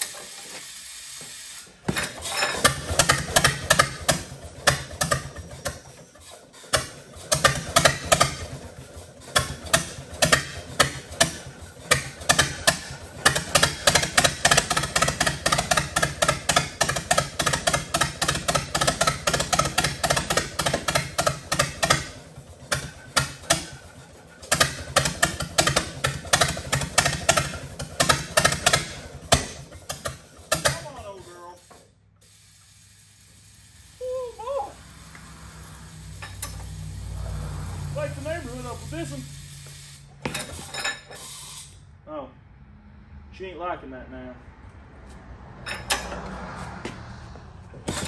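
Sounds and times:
tractor engine running rough: 0:01.9 - 0:31.3, 0:34.8 - 0:39.5, 0:47.6 - 0:48.0.

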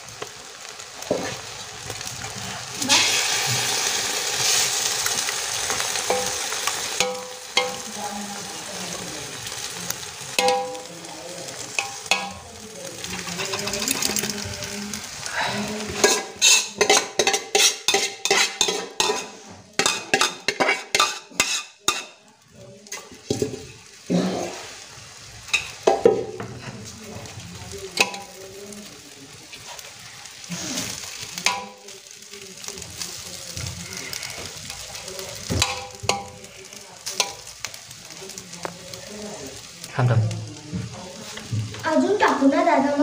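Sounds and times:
gravy sizzling: 0:00.0 - 0:43.0
spoon scraping metal pot: 0:15.9 - 0:22.1.

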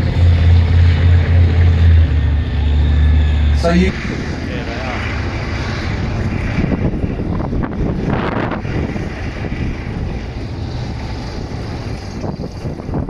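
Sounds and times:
tank diesel engine running: 0:00.0 - 0:13.0
wind on microphone: 0:03.8 - 0:13.0.

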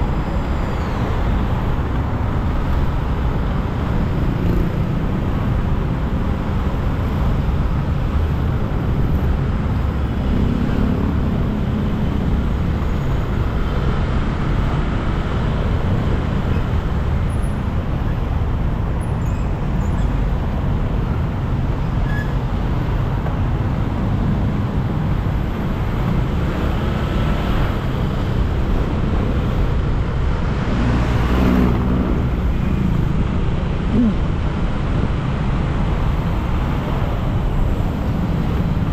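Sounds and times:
cars and scooters passing close: 0:00.0 - 0:38.9
motorcycle rumbling: 0:00.0 - 0:38.9.

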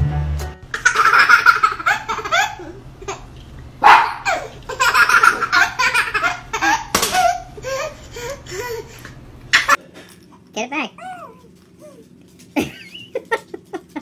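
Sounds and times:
background music: 0:00.0 - 0:00.7
babies laughing and giggling: 0:00.8 - 0:03.3, 0:04.3 - 0:09.8.

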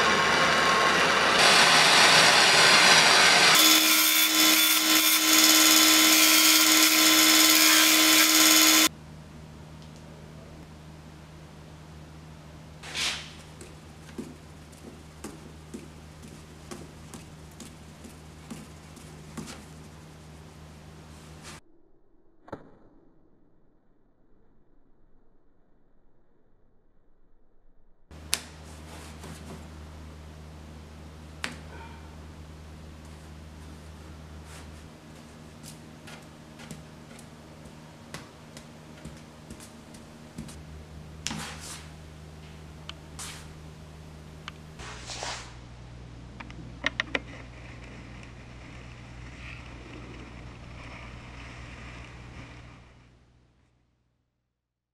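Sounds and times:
fidget spinner humming: 0:13.4 - 0:21.5, 0:41.9 - 0:53.6.

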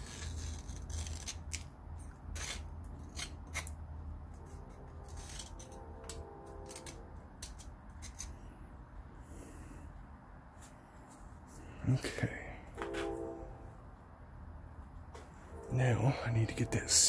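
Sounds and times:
metal pick scraping and clicking: 0:04.4 - 0:08.4.

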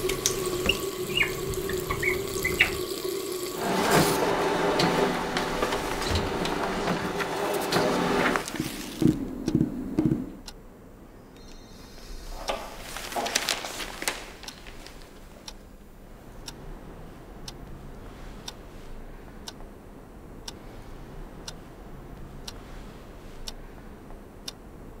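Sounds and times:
clock ticking: 0:04.4 - 0:10.7, 0:13.4 - 0:25.0
newspaper pages rustling: 0:05.3 - 0:09.2, 0:12.6 - 0:15.2.

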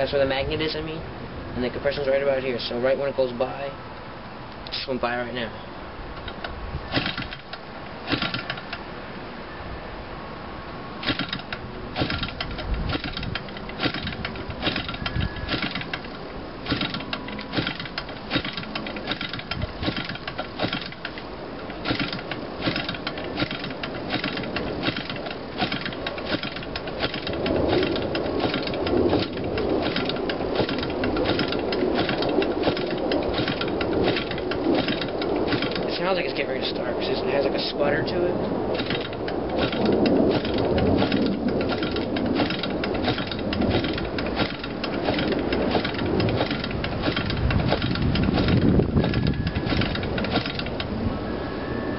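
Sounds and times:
rushing noise: 0:00.0 - 0:51.9
model engine popping on propeller flips: 0:06.2 - 0:08.8, 0:11.0 - 0:51.0.

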